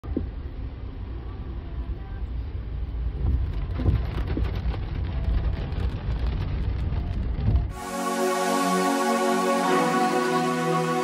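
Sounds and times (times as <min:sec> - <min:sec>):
rain tapping on windscreen: 0:03.2 - 0:07.7.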